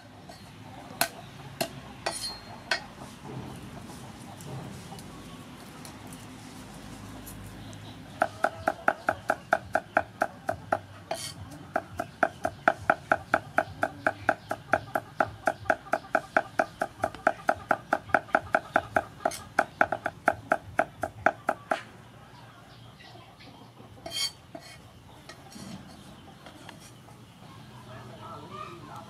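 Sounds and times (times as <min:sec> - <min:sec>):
cleaver chopping on wooden block: 0:08.2 - 0:21.8.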